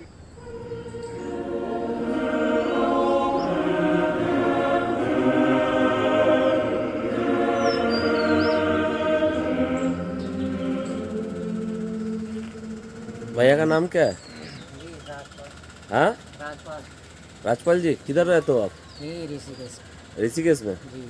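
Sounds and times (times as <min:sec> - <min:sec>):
choir singing long held notes: 0:00.4 - 0:15.0.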